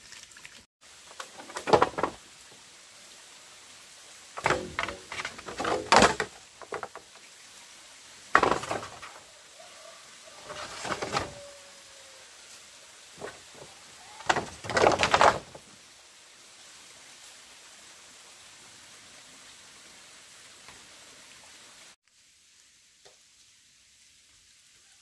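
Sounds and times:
bamboo poles knocking together: 1.1s - 2.2s, 4.4s - 7.2s, 8.3s - 9.2s, 10.5s - 11.5s, 13.2s - 15.6s.

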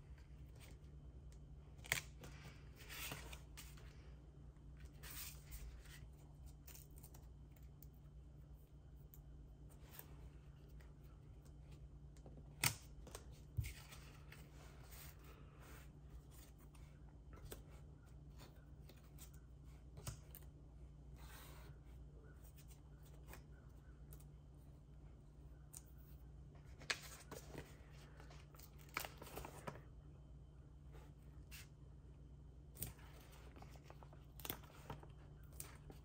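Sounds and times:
steady low hum: 0.0s - 36.0s
paper rustling: 26.6s - 29.9s.

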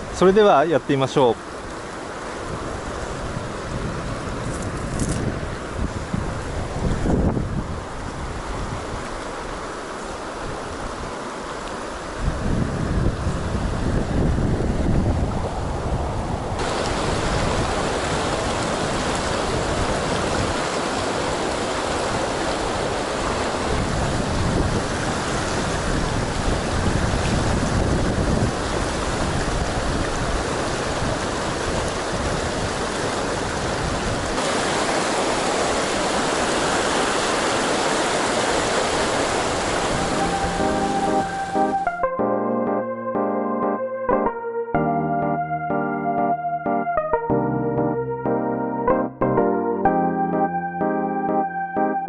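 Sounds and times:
wind rumble on microphone: 2.3s - 9.7s, 12.0s - 34.4s
river rushing over rocks: 16.6s - 41.5s.

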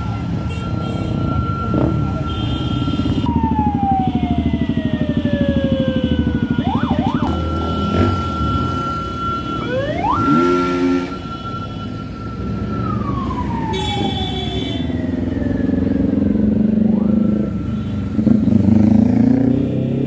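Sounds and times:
siren wailing: 0.0s - 19.5s
motorcycle revving past: 18.2s - 20.0s.

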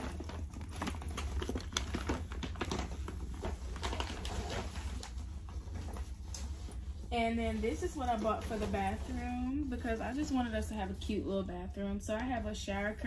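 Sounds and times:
paper bag and tissue rustling: 0.0s - 11.6s.

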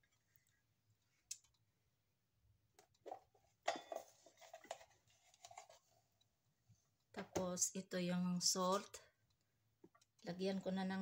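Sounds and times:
kitchen things scraping and rustling: 3.0s - 6.2s.

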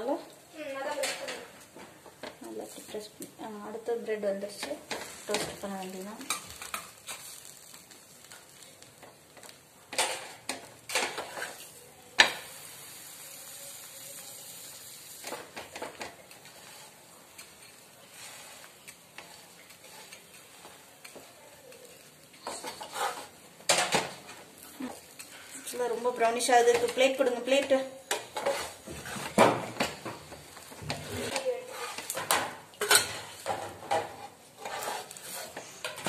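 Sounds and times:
butter sizzling on pan: 0.0s - 36.0s
clatters and scrapes against pan: 0.9s - 1.5s, 9.9s - 12.4s, 15.3s - 36.0s.

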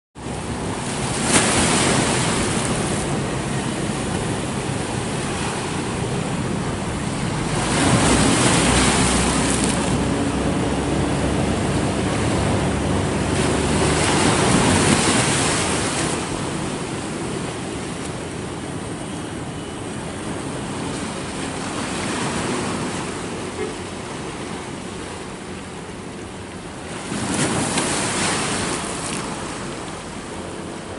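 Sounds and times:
wind on microphone: 0.2s - 23.4s
waves washing onto rocky shore: 0.3s - 30.9s.

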